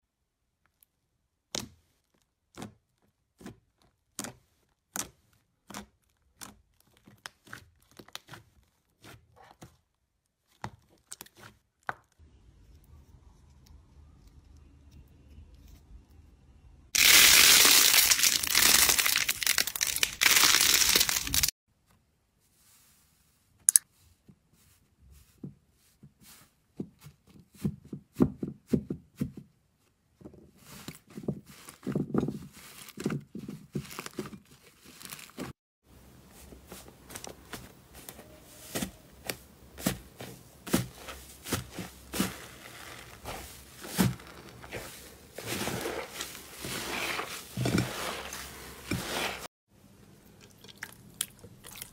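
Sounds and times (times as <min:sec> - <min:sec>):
loud crinkling noise: 0:17.0 - 0:21.5
slime squelching and crackling: 0:17.0 - 0:21.5, 0:36.6 - 0:49.5.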